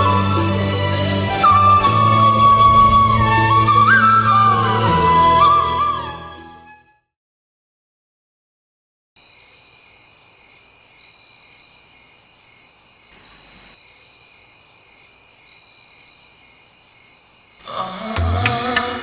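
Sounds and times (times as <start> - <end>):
crickets chirring: 9.2 - 18.0.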